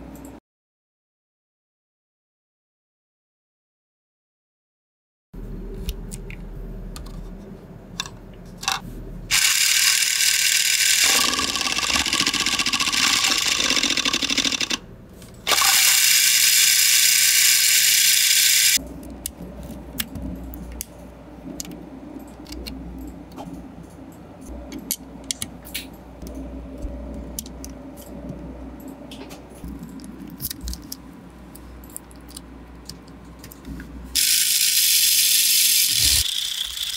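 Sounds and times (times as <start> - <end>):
plastic parts clicking: 8.0 - 8.8
electric drill whirring: 9.3 - 14.8, 15.5 - 18.8, 34.2 - 36.9.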